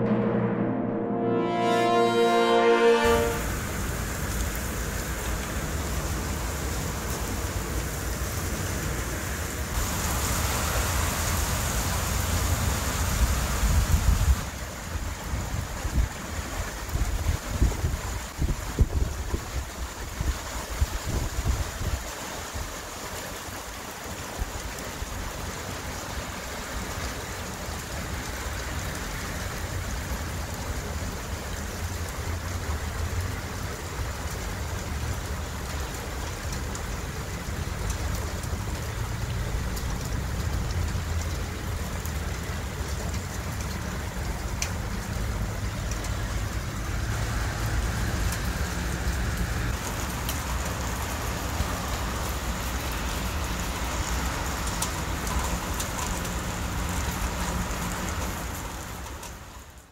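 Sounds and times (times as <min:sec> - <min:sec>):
low rumble: 0:00.0 - 0:02.0
heavy rain on leaves and street: 0:01.4 - 0:59.9.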